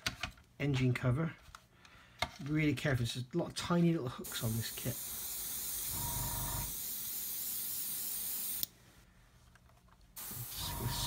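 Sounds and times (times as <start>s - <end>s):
airbrush hissing: 4.3s - 8.7s, 10.2s - 11.0s.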